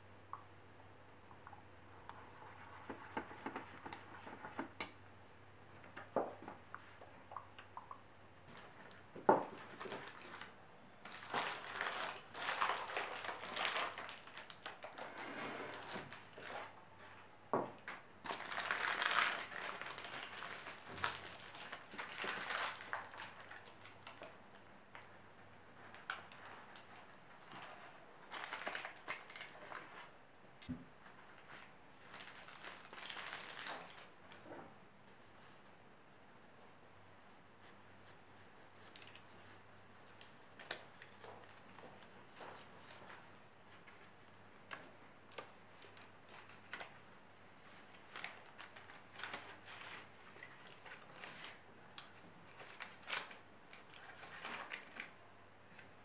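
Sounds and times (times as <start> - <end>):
baking paper crinkling: 8.5 - 30.2, 31.0 - 34.4, 37.4 - 56.0.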